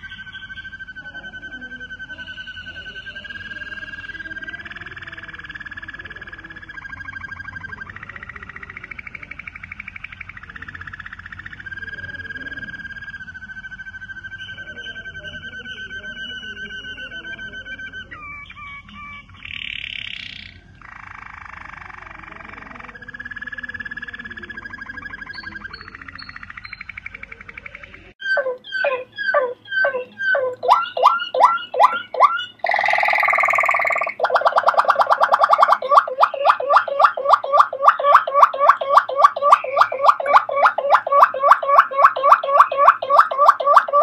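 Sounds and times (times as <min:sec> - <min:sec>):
canary trilling song: 0:00.0 - 0:44.0
sharp falling bird notes: 0:22.8 - 0:44.0.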